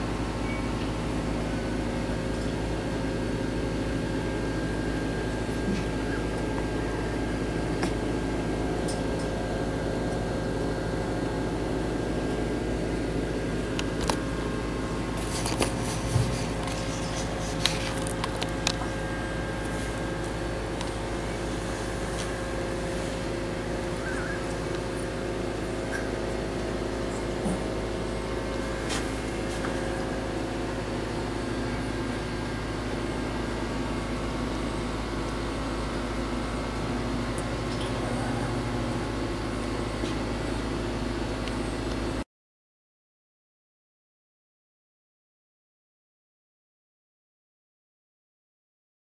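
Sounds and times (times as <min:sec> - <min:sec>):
steady background hum: 0:00.0 - 0:42.2.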